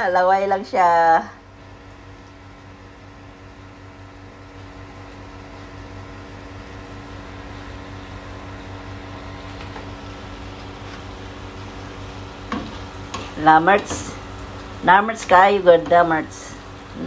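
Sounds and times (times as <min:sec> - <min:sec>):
low electrical hum: 0:00.0 - 0:17.0
vegetables sizzling in a pan: 0:09.7 - 0:17.0.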